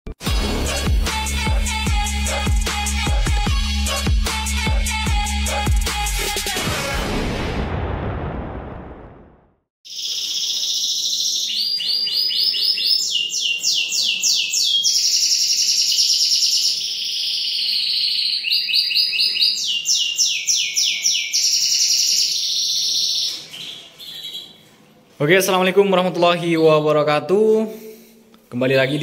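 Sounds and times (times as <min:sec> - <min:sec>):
canary singing: 0:09.9 - 0:24.8.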